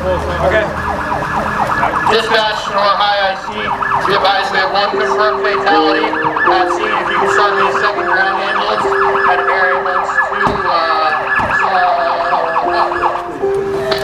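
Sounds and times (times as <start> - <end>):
siren yelping: 0.4 - 14.0
low tones changing pitch: 3.6 - 14.0.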